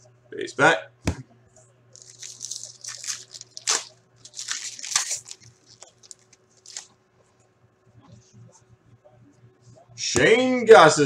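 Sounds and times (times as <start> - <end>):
wrapper crinkling and tearing: 2.0 - 7.0.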